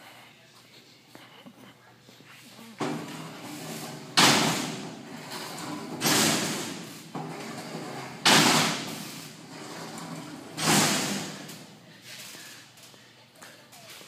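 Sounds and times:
steel door clanging shut: 2.8 - 11.8.

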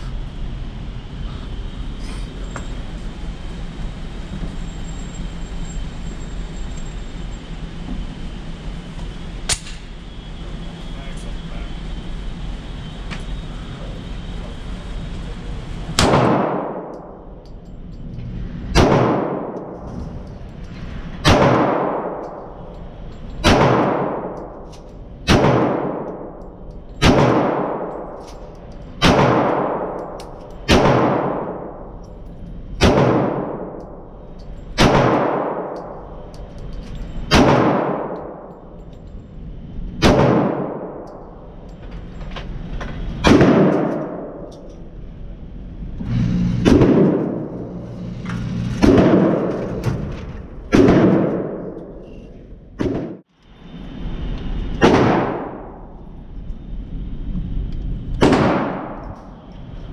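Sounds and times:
pistol shots echoing: 21.2 - 22.3, 23.4 - 24.3, 25.2 - 26.3, 29.0 - 30.0, 30.7 - 31.7, 32.8 - 33.7, 34.8 - 36.0, 37.3 - 38.4, 50.7 - 51.6, 58.2 - 59.0.

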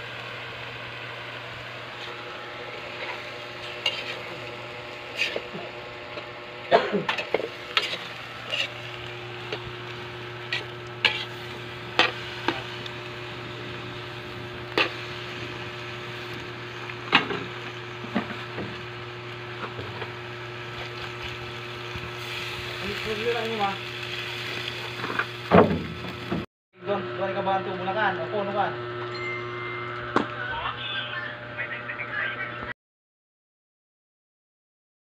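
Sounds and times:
food sizzling in a wok: 0.0 - 26.4
spatula clinking and scraping pan: 7.1 - 8.8, 10.5 - 12.2.

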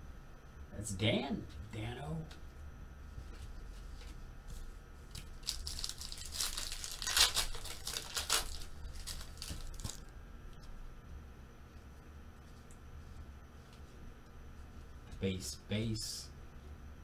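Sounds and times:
foil wrapper tearing and crinkling: 5.1 - 10.1.

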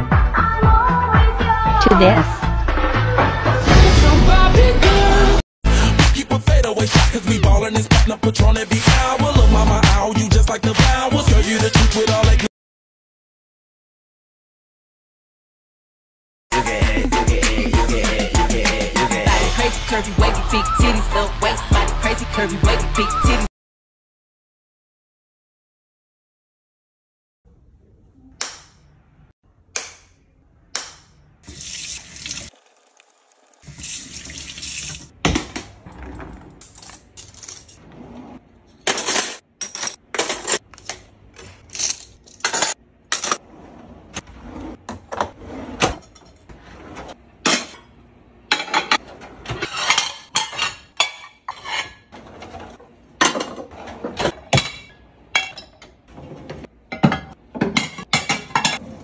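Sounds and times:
dishes and cutlery clinking: 48.5 - 52.1, 53.2 - 56.0, 56.9 - 58.8.

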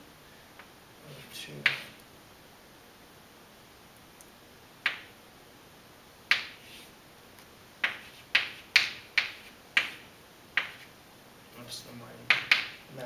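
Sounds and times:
chalk tapping on blackboard: 1.6 - 2.0, 4.8 - 5.1, 6.3 - 6.9, 7.8 - 10.9, 12.3 - 12.8.

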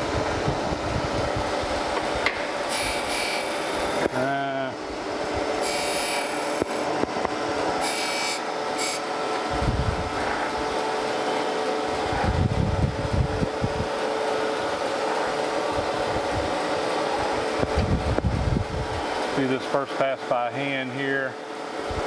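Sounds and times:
grinder wheel humming: 0.0 - 20.0
high-pitched grinding hiss: 2.5 - 4.8, 5.6 - 7.0, 7.7 - 9.2.

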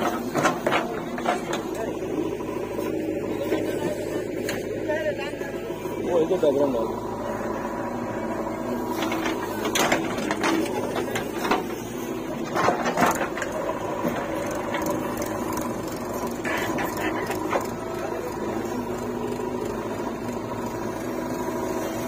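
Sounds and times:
diesel engine running: 0.0 - 22.0
falling earth: 6.9 - 22.0.

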